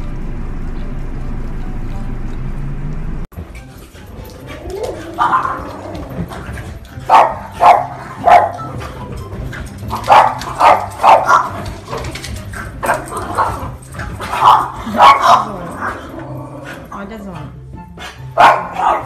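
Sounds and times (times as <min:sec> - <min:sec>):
puppies barking: 0:03.7 - 0:17.0, 0:18.0 - 0:19.0.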